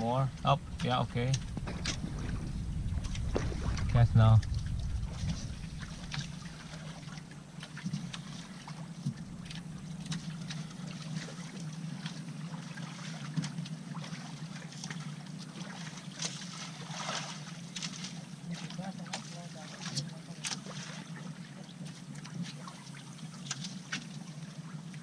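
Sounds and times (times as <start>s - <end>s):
boat engine idling: 0.0s - 12.7s
water noise: 0.0s - 25.0s.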